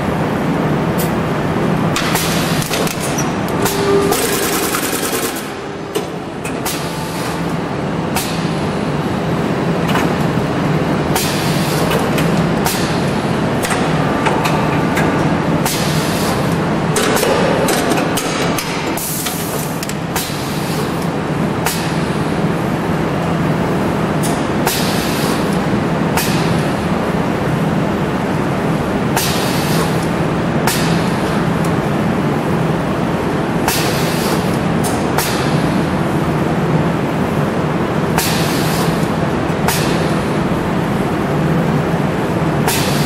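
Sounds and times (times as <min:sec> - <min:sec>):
machine humming: 0:00.0 - 0:33.7
sharp machine clacks: 0:02.0 - 0:05.6.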